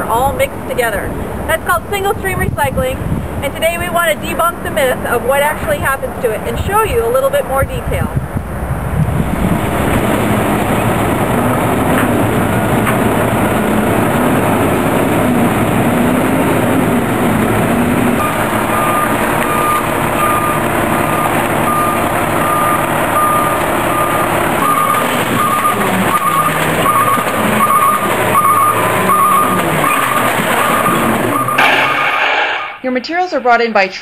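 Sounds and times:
garbage truck engine running: 0.0s - 32.8s
reversing alarm beeping: 18.1s - 32.8s.

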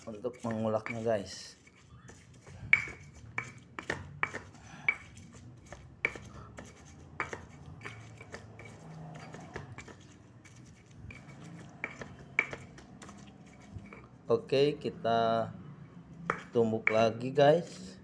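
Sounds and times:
pestle knocking in stone mortar: 0.0s - 1.1s, 2.1s - 10.0s, 11.1s - 13.2s, 16.3s - 17.1s
gritty rubbing of pestle: 0.0s - 14.1s, 16.3s - 17.1s.

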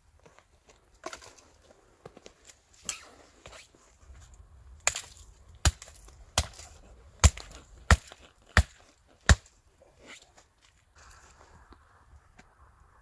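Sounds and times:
hatchet chopping sapling: 4.8s - 9.6s.

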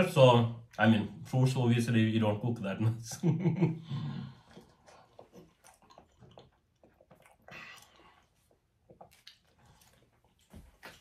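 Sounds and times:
person chewing fruit: 3.9s - 11.0s.

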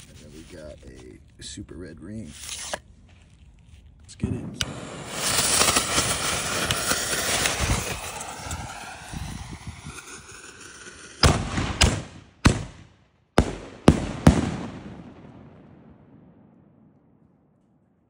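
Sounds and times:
fireworks bursting with loud bangs: 4.2s - 16.6s
firework fuses hissing: 4.6s - 11.3s.

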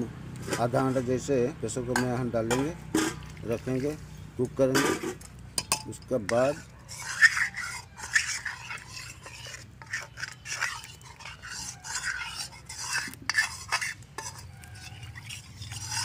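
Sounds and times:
spoon scraping metal cookware: 0.4s - 16.0s
hand rubbing inside steel wok: 6.2s - 16.0s.

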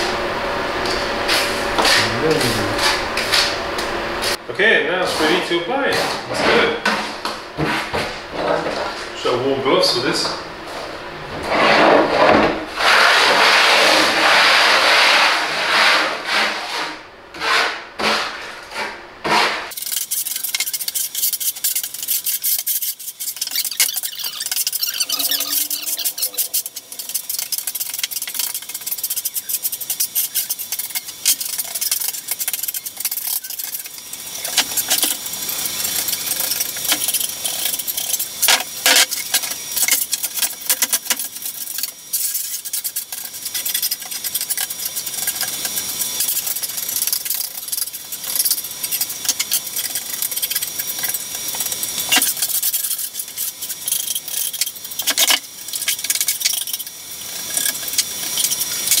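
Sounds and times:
scraper spreading paste on wood: 11.4s - 37.9s.

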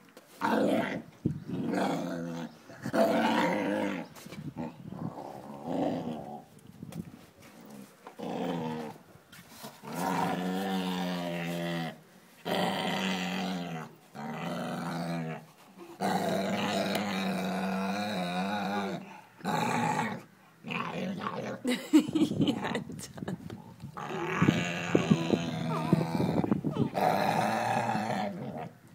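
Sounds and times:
dog growling: 9.9s - 21.6s, 24.0s - 28.8s.

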